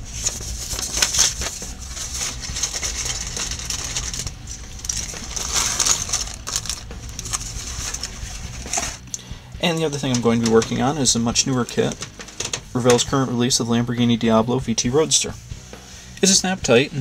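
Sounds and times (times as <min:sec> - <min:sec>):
paper sheet rustling: 0:00.0 - 0:09.0, 0:09.7 - 0:13.3
plastic bag crinkling: 0:00.1 - 0:09.1.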